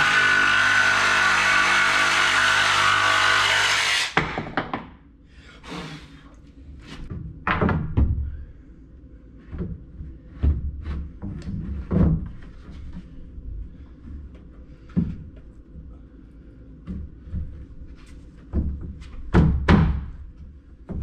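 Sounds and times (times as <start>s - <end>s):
jigsaw cutting wood: 0.0s - 4.2s
board thudding and knocking: 4.2s - 4.9s, 7.1s - 8.2s, 18.5s - 20.2s.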